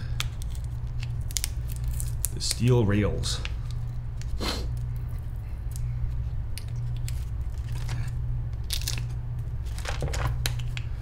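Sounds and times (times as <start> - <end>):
steady low hum: 0.0 - 11.0
plastic bags crinkling: 7.0 - 10.8.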